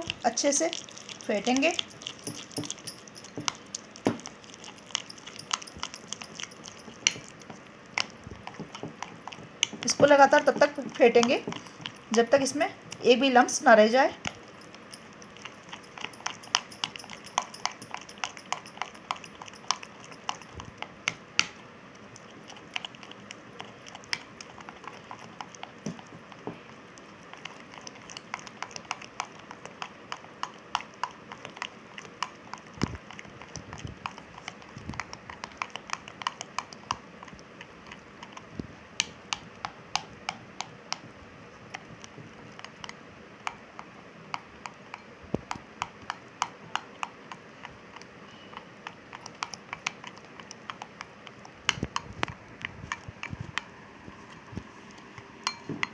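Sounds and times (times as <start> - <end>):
spoon clicking against glass bowl: 0.0 - 7.6, 9.7 - 13.1, 14.2 - 20.7, 55.5 - 55.9.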